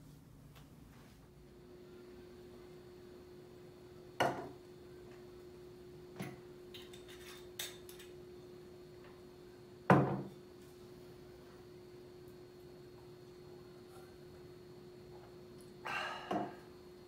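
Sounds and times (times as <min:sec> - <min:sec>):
objects knocking on wooden table: 0:09.9 - 0:10.3.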